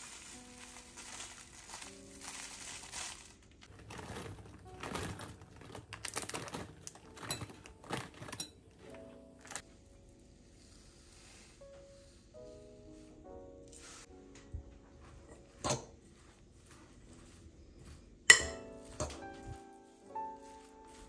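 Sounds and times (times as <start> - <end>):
coconut shavings poured with hiss: 0.0 - 3.4, 10.2 - 13.1
faint background music: 0.0 - 21.0.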